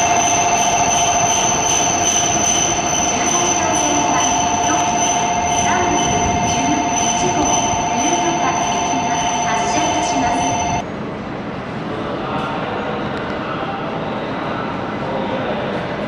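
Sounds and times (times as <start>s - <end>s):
high two-note whine: 0.0s - 10.8s
train rushing past: 0.0s - 16.0s.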